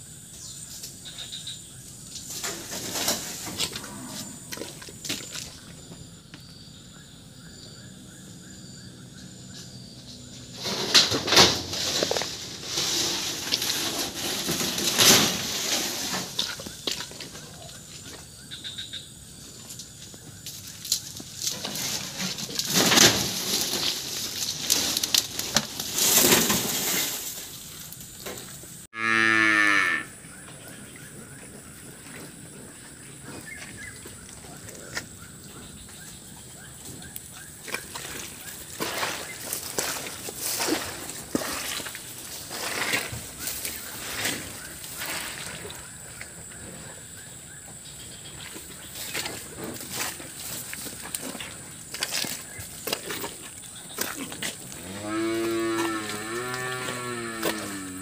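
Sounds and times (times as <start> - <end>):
footsteps in mud and dry leaves: 2.2 - 6.1, 11.6 - 18.0, 19.8 - 29.2, 31.4 - 46.3, 48.2 - 58.0
cow mooing: 29.0 - 30.1, 54.7 - 58.0.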